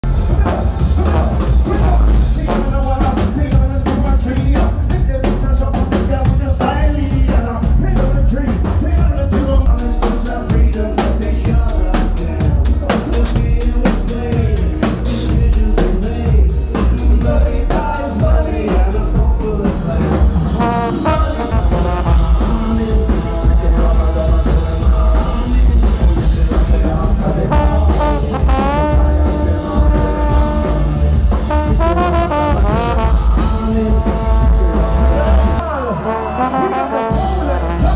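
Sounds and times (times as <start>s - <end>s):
drum kit: 0.0s - 37.9s
live ska band playing: 0.0s - 37.9s
person singing: 0.0s - 37.9s
long held brass notes: 20.5s - 23.7s, 27.5s - 37.9s.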